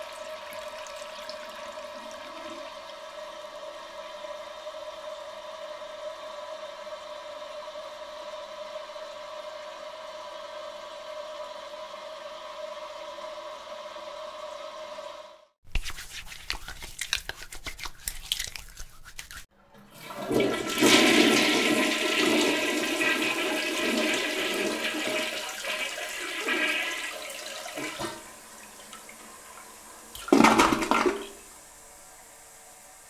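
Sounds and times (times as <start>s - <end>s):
toilet flushing: 0.0s - 15.4s, 19.6s - 33.0s
hands lathering soap: 15.7s - 19.5s.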